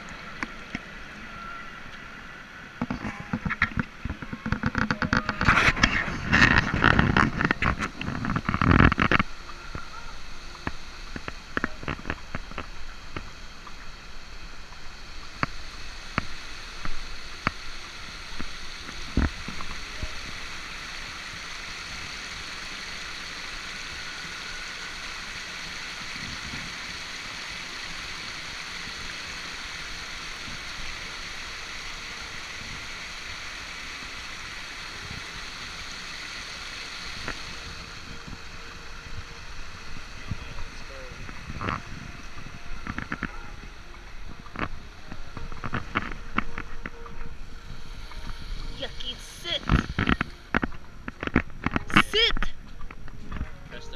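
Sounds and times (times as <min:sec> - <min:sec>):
water rushing over weir: 0:00.0 - 0:53.9
sharp clicks and knocks: 0:02.8 - 0:09.8, 0:49.6 - 0:53.5.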